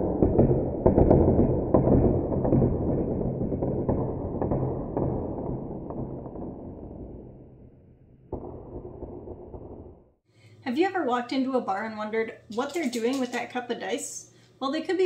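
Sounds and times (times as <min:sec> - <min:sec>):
deep rumbling boom: 0:00.0 - 0:10.2
sharp cracks: 0:00.0 - 0:10.2.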